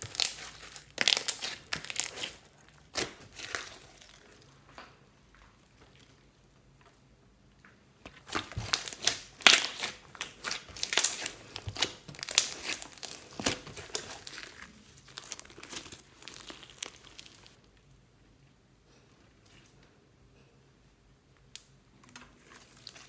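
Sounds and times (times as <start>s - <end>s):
hands squeezing sticky slime: 0.0s - 4.5s, 8.2s - 17.6s.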